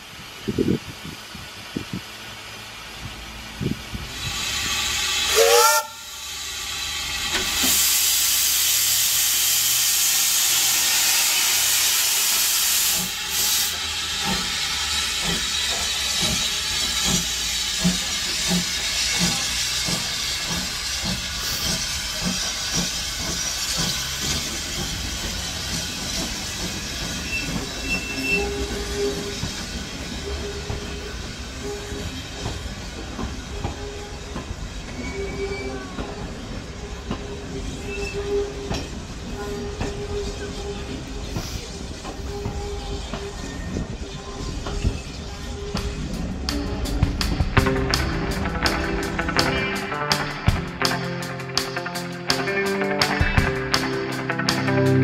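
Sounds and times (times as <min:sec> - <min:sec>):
steam hissing: 0:00.0 - 0:49.5
regular locomotive beat: 0:02.4 - 0:55.0
steam whistle blast: 0:04.3 - 0:06.3.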